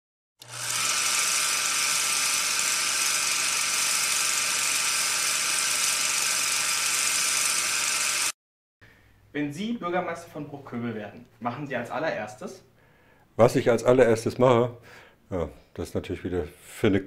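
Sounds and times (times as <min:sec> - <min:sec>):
film projector whirring: 0:00.4 - 0:08.4.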